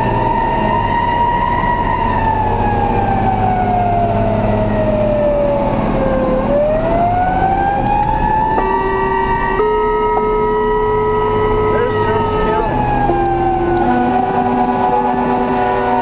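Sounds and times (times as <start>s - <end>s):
emergency siren: 0.0s - 16.0s
engine rumble: 0.0s - 16.0s
vehicle horn: 8.6s - 16.0s.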